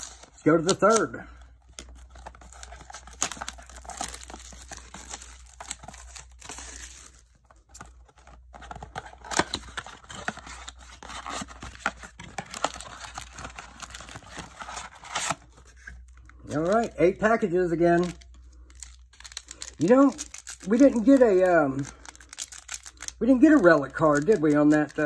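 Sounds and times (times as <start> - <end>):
cardboard box tearing: 8.6 - 15.4.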